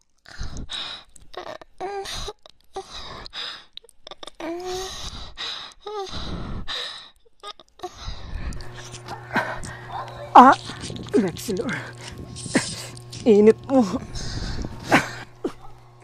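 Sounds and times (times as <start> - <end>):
person breathing hard: 0.2 - 1.2, 2.0 - 3.8, 4.4 - 7.2, 7.8 - 10.0, 10.6 - 13.2, 14.0 - 15.6
person moaning: 7.4 - 15.7.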